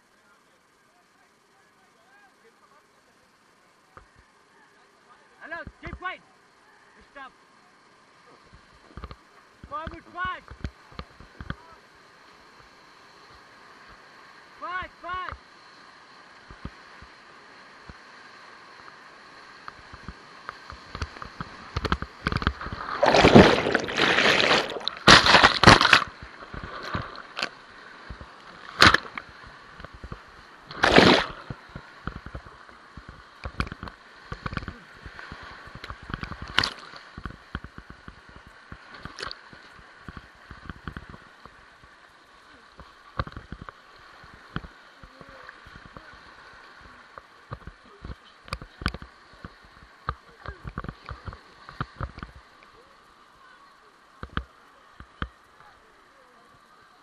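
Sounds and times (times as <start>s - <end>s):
whitewater churning and sloshing: 8.0s - 57.0s
loud splashing: 22.2s - 29.5s, 30.6s - 31.6s.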